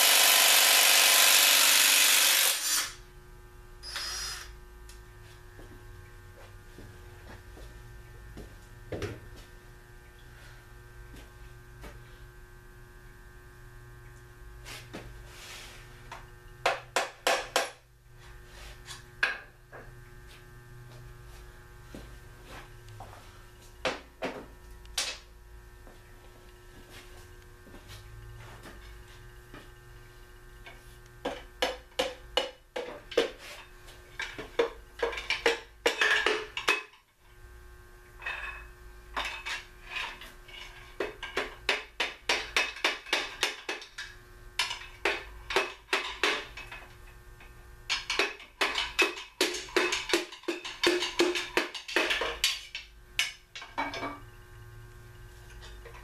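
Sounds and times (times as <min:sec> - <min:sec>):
steady hum: 0:00.0 - 0:56.0
metal tools tapping on metal: 0:34.2 - 0:37.1, 0:39.2 - 0:46.8, 0:47.4 - 0:54.2.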